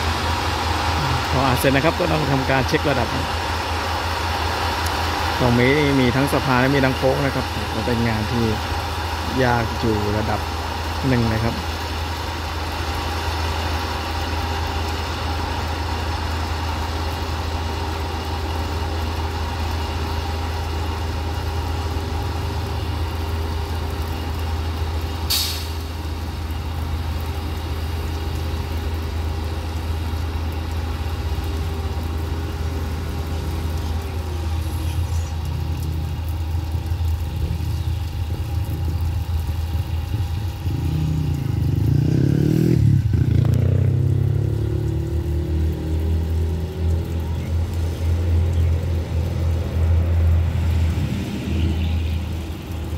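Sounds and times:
diesel engine running: 0:00.0 - 0:52.9
air hiss: 0:25.3 - 0:25.9.

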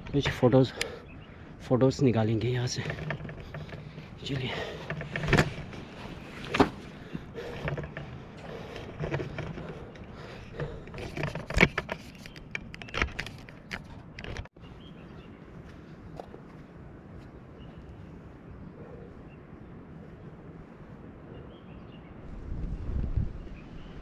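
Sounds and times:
handling knocks and scrapes: 0:02.6 - 0:14.6.

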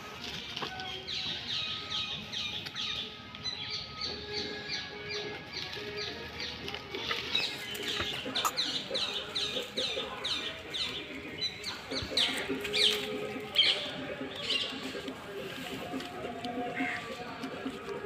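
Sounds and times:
bird chirping: 0:00.7 - 0:14.8.

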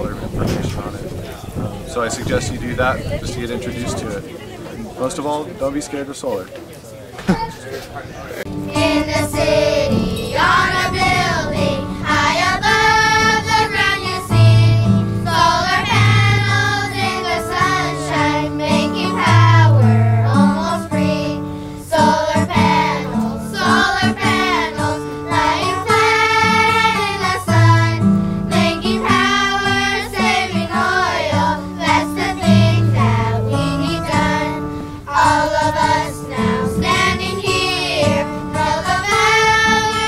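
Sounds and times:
children's choir singing: 0:08.5 - 0:40.0
instrumental accompaniment with bass: 0:08.5 - 0:40.0.

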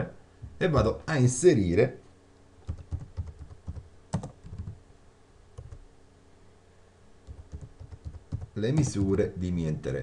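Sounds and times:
computer keyboard typing: 0:02.6 - 0:04.8, 0:05.6 - 0:05.8, 0:07.2 - 0:09.0.

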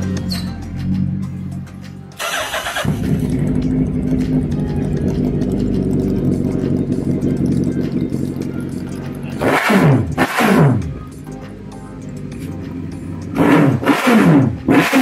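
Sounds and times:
background music: 0:00.0 - 0:15.0
motorcycle engine starting: 0:02.2 - 0:11.1, 0:12.2 - 0:15.0.

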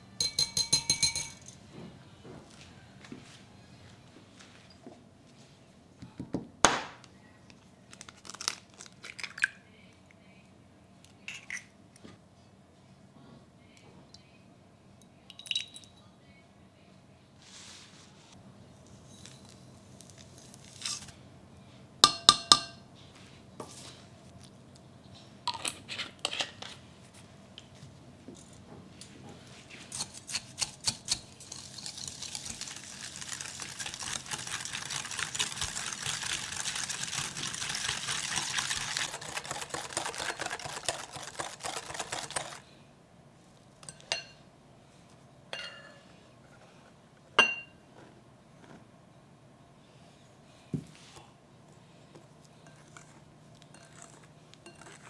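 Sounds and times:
utensils clinking against bowls: 0:00.2 - 0:01.6, 0:37.0 - 0:42.6, 0:45.5 - 0:46.0, 0:52.6 - 0:55.0
fast mixing in a bowl: 0:30.8 - 0:42.7, 0:52.6 - 0:55.0.

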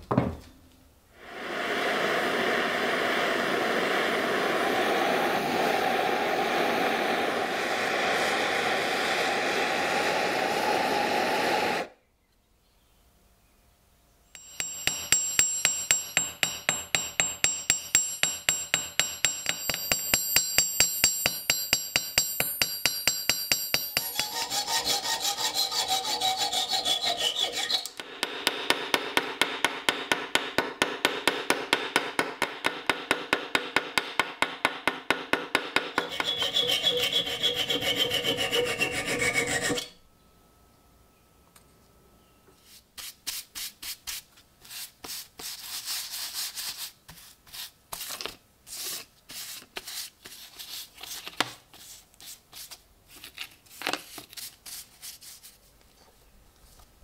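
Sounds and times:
hand tool rasping on metal: 0:14.4 - 0:28.0, 0:35.8 - 0:40.0.

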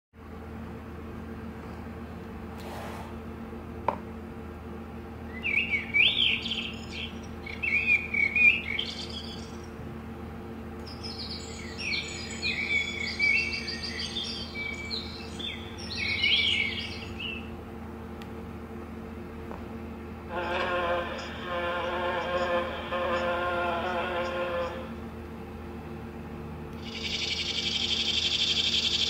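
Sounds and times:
recorded birdsong from small speaker: 0:05.2 - 0:09.9, 0:10.7 - 0:17.6, 0:26.8 - 0:29.0.

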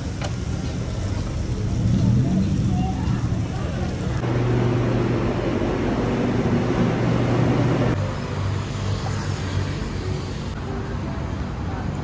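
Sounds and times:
station noise: 0:00.0 - 0:08.0
train equipment hum: 0:00.0 - 0:08.0
city road traffic: 0:00.0 - 0:12.0.

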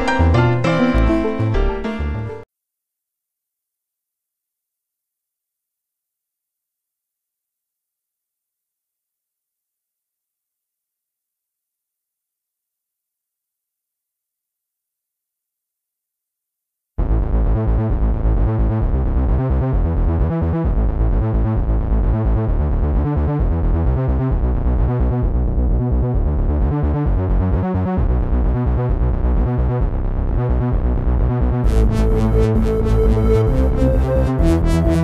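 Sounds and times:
steady low beat: 0:17.0 - 0:35.0
arpeggiated synth pattern: 0:31.6 - 0:35.0
bright high synth sounds: 0:31.7 - 0:35.0.

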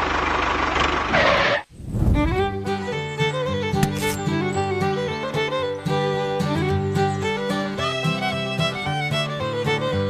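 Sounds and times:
fiddle tune over steady beat: 0:02.1 - 0:10.0.

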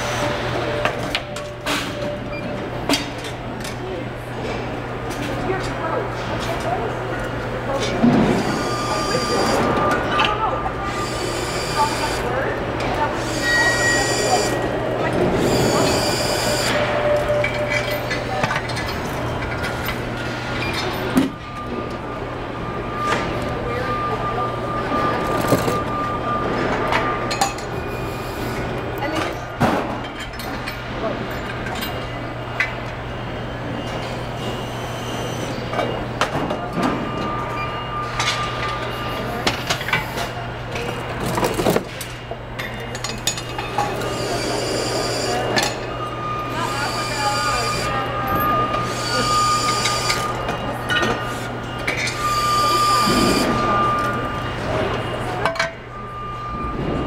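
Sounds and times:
factory machinery hum: 0:00.0 - 0:57.0
clanks and knocks of parts: 0:16.7 - 0:21.7, 0:39.4 - 0:44.1, 0:55.4 - 0:55.8.

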